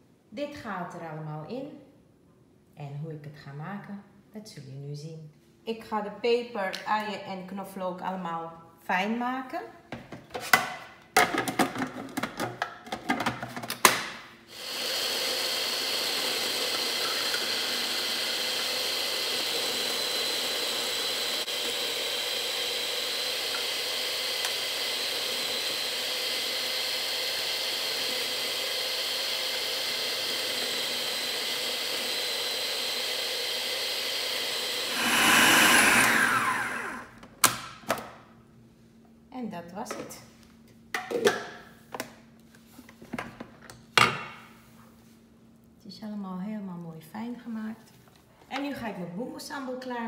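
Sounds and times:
food processor motor running: 14.5 - 37.2.

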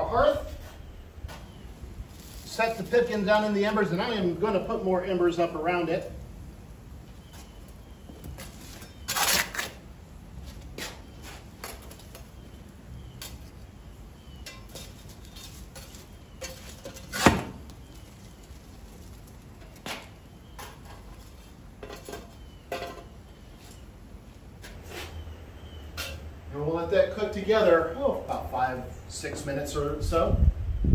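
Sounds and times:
fire shovel scraping on hearth: 14.4 - 20.0, 24.6 - 26.3.

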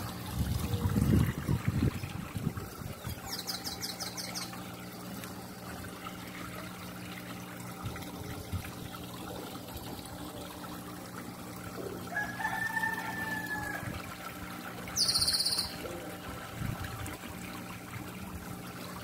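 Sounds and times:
water trickling into pond: 0.0 - 19.0
high chirping trill: 15.0 - 15.8.

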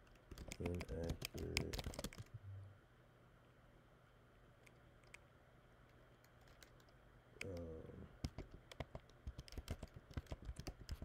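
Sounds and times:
typing on computer keyboard: 0.1 - 2.3, 8.2 - 11.0.

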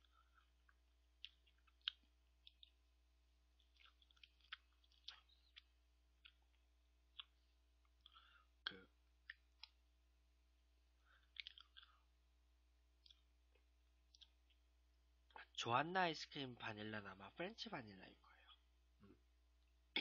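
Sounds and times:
spoon clicks and mouth noises: 0.4 - 2.8, 3.6 - 9.8, 11.2 - 12.0.

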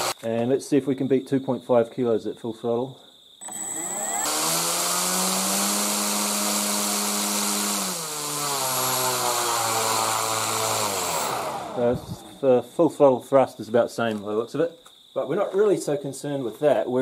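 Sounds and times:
electric motor spinning propeller: 3.4 - 12.3.

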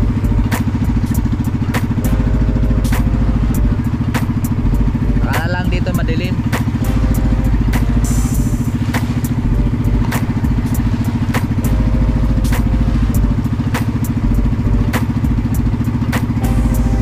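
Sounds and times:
motorboat engine running: 0.0 - 17.0
hull slapping water: 7.6 - 16.4.

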